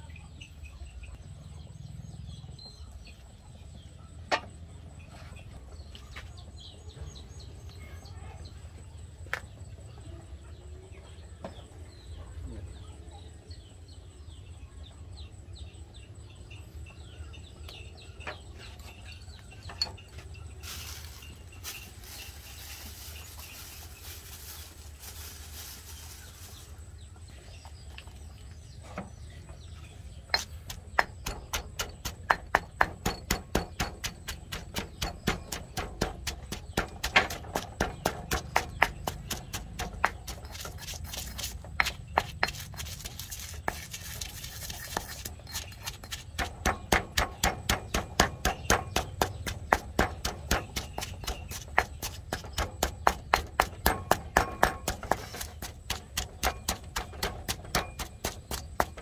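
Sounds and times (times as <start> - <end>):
stone pestle pounding in mortar: 30.3 - 59.0.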